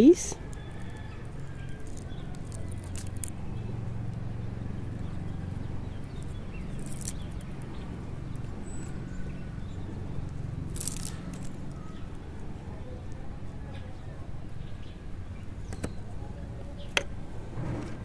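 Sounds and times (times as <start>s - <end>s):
plant stem crackling and snapping: 0.5s - 3.4s, 6.1s - 7.6s, 10.7s - 11.9s.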